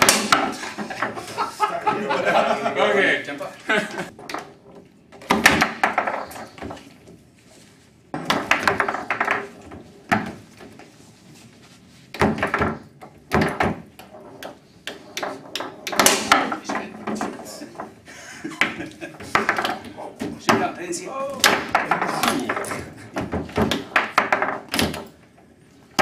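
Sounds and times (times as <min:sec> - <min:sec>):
foosball ball and rod knocks: 0:00.0 - 0:01.3, 0:04.2 - 0:06.9, 0:08.2 - 0:10.8, 0:12.1 - 0:18.0, 0:18.6 - 0:20.8, 0:21.4 - 0:25.2.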